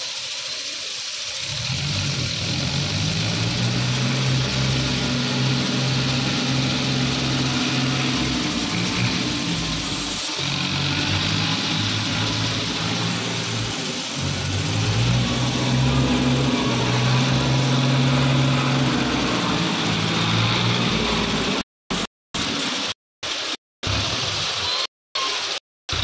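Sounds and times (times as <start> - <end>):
tractor diesel engine running: 1.4 - 21.7.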